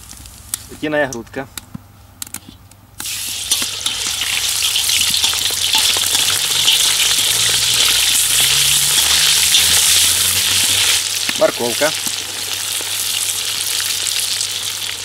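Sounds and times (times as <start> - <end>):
meat sizzling in a wok: 3.0 - 15.0
metal skimmer ticking: 3.4 - 10.9.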